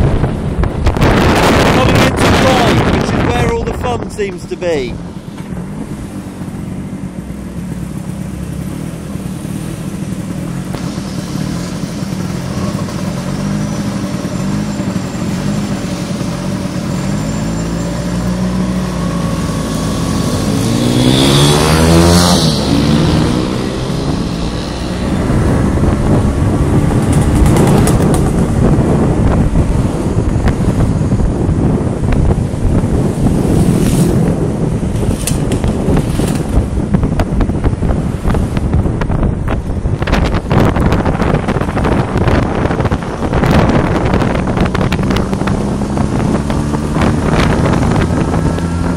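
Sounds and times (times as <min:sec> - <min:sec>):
rushing noise: 0:00.0 - 0:48.9
scooter engine running: 0:05.6 - 0:17.0, 0:18.7 - 0:37.6.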